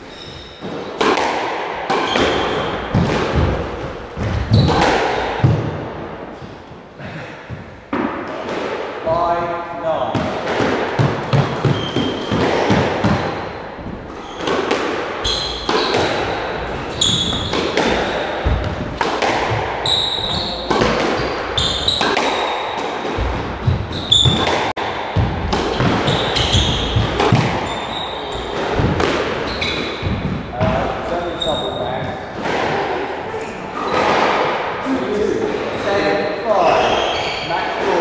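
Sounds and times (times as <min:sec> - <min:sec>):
squash ball hitting rackets and walls: 0:00.0 - 0:34.8
shoes squeaking on wooden floor: 0:11.3 - 0:19.0, 0:19.8 - 0:22.2, 0:23.2 - 0:24.7, 0:25.4 - 0:30.4, 0:31.1 - 0:32.2, 0:36.6 - 0:38.0.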